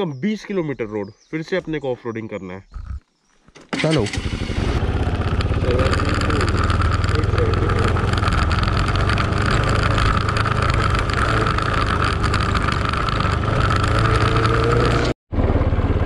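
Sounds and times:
motorcycle engine running: 0:03.8 - 0:16.0.

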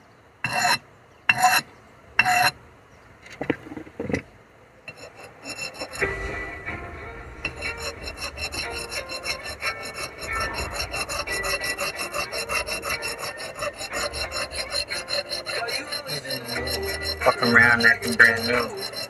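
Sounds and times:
blade sharpening rasp: 0:00.5 - 0:01.6, 0:02.2 - 0:02.5, 0:04.9 - 0:06.3, 0:07.4 - 0:19.0.

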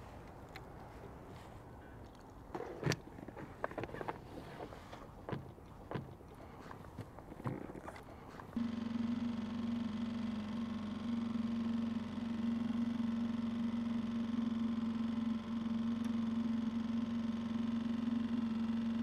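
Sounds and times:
motor humming: 0:00.0 - 0:19.0.

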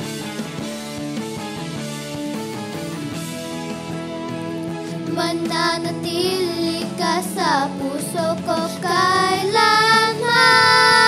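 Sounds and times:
instrumental backing: 0:00.0 - 0:11.0
girl singing: 0:05.1 - 0:11.0.

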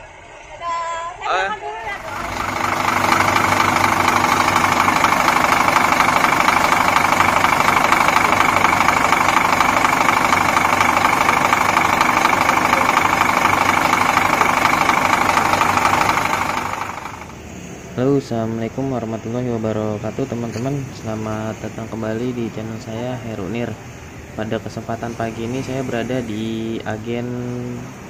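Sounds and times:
engine running with fast pulsing: 0:01.8 - 0:17.8.

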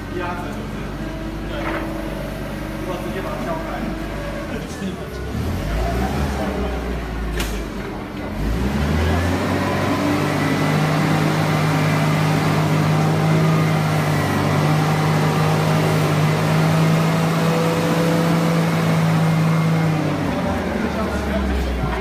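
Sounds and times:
engine running with low hum: 0:00.0 - 0:22.0.

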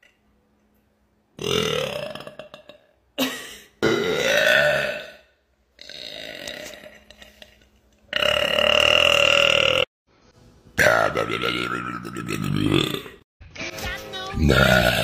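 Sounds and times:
woman burping: 0:01.4 - 0:07.5, 0:08.1 - 0:09.9, 0:11.5 - 0:13.2, 0:14.5 - 0:15.0.

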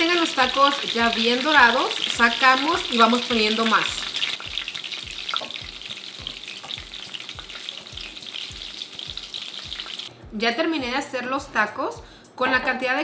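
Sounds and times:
tacos sizzling in hot oil: 0:00.0 - 0:10.1.

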